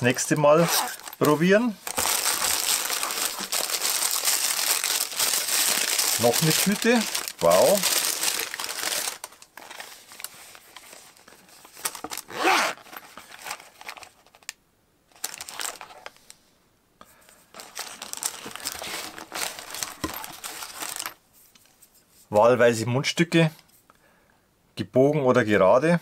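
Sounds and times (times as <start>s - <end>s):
tissue paper crinkling: 0.0s - 14.5s, 15.1s - 16.3s, 17.4s - 21.9s.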